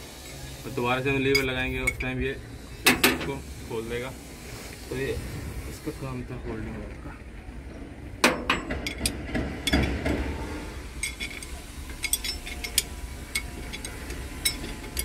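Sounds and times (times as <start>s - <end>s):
steady low hum: 0.0s - 15.0s
spanner clinking on metal fittings: 1.2s - 2.2s, 8.2s - 10.0s, 11.0s - 15.0s.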